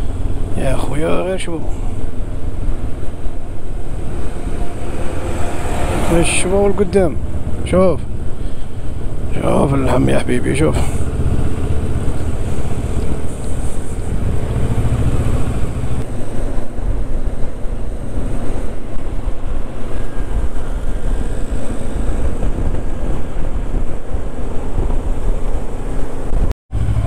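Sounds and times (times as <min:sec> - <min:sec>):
wind buffeting microphone: 0:00.0 - 0:27.0
motorcycle engine running: 0:11.0 - 0:16.0.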